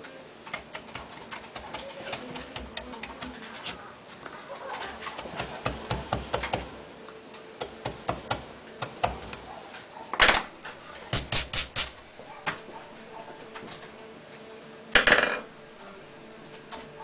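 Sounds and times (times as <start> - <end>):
bristle brush sweeping wood: 10.7 - 13.5.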